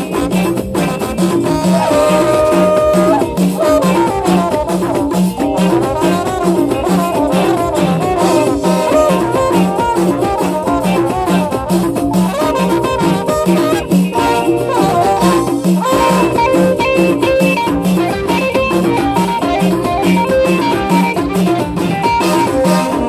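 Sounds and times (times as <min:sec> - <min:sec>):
repeating low beat: 0:00.0 - 0:23.0.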